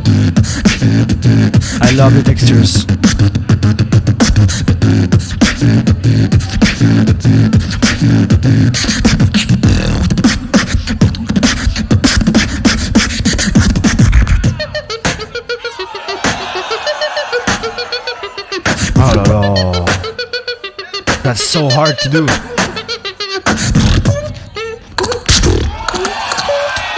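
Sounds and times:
beatboxing: 0.0s - 16.6s, 18.5s - 26.5s
pulsing deep bass line: 19.0s - 20.2s.

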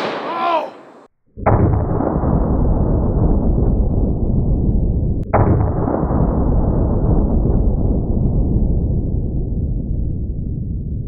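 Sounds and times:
deep revolver gunshot boom: 0.0s - 4.1s.

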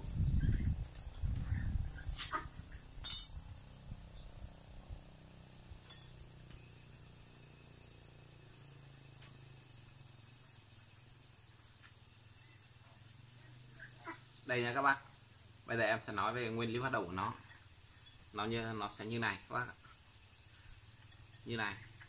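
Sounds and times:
metal parts clinking: 3.0s - 3.4s, 5.9s - 6.2s.

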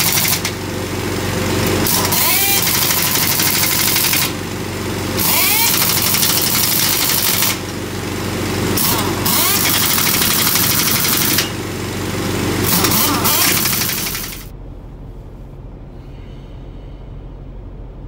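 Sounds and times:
impact wrench hammering: 0.0s - 0.6s, 1.6s - 4.4s, 5.2s - 7.8s, 8.8s - 11.6s, 12.6s - 14.5s
air compressor engine hum: 0.0s - 18.0s.

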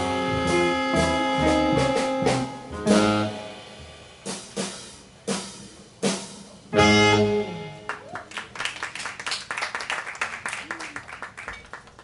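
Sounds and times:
jazz band playing: 0.0s - 8.2s.

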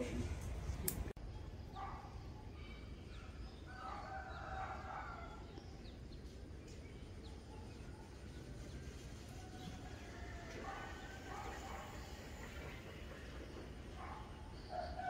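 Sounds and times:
rooster crowing: 3.7s - 5.4s, 9.2s - 11.4s.

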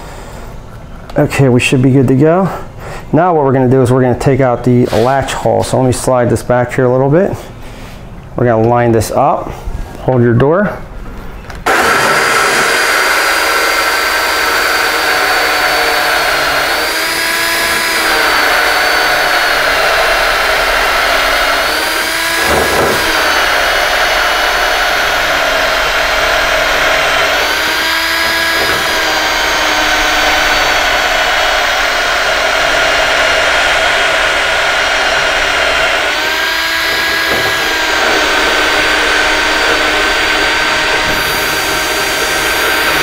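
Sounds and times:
drill boring into wood: 11.6s - 43.0s.

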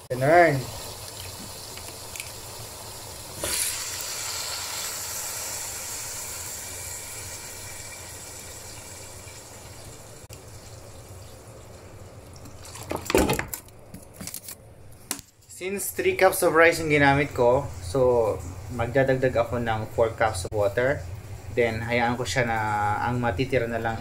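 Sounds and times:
water pouring into pot: 0.1s - 13.0s.

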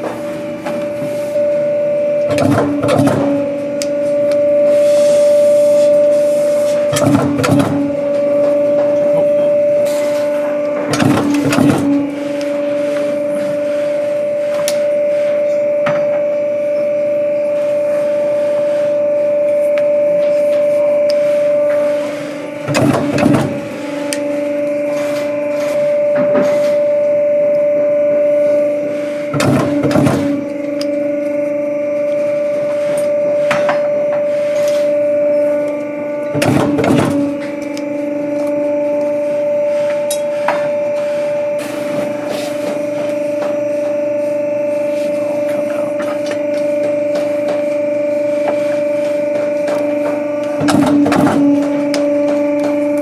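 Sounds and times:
press motor humming: 0.0s - 53.0s.

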